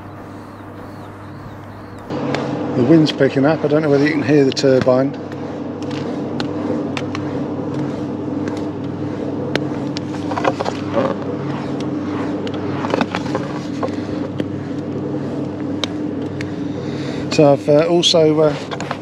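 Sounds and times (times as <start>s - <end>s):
wind turbine mechanical hum: 0.0s - 19.0s.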